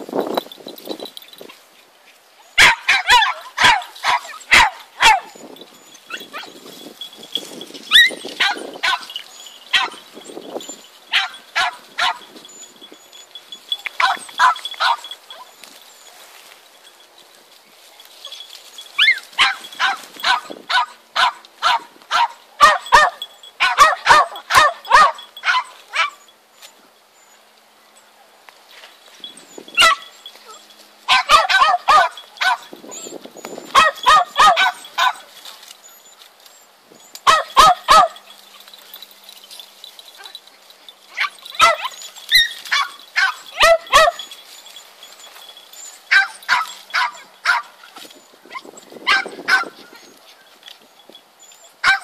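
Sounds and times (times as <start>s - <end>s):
dog barking high-pitched: 2.6s - 5.4s, 7.9s - 10.0s, 11.1s - 12.3s, 13.9s - 15.5s, 19.0s - 26.2s, 29.8s - 33.1s, 33.7s - 35.3s, 37.2s - 38.3s, 41.1s - 44.3s, 46.1s - 47.7s, 48.5s - 49.8s, 51.8s - 52.0s.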